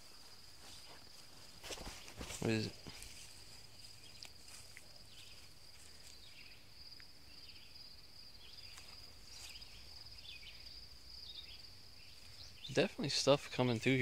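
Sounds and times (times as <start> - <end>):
footsteps swishing through grass: 0.0 - 6.3, 8.7 - 9.9
high insect trill: 0.0 - 14.0.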